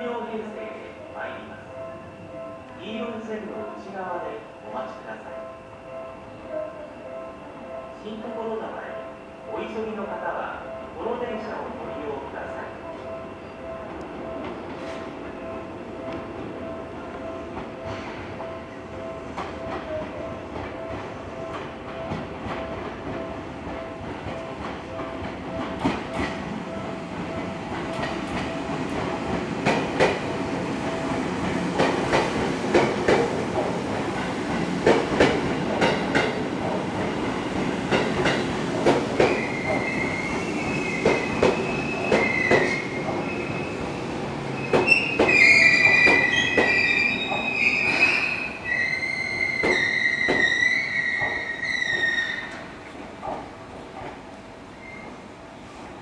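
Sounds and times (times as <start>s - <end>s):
train brakes squealing: 39.3s - 43.9s, 44.5s - 52.6s, 54.7s - 55.2s.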